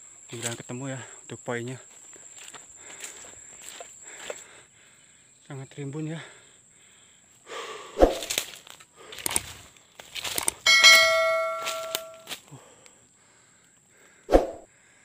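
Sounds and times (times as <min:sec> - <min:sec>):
quick clicks and swishes: 0:08.0 - 0:08.5, 0:14.3 - 0:14.6
bell chime: 0:10.7 - 0:12.3.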